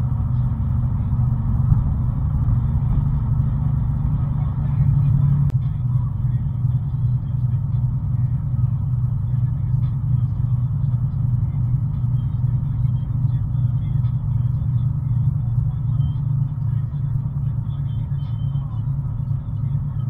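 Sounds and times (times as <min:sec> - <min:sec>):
vehicle cabin road rumble: 0:00.0 - 0:20.0.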